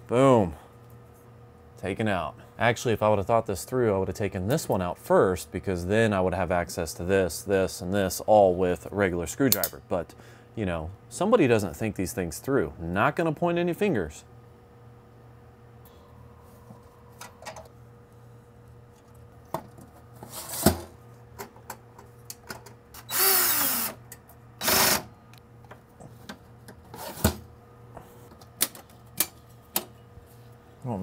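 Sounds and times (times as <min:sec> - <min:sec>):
power screwdriver whirring: 0:23.0 - 0:24.0, 0:24.6 - 0:25.1.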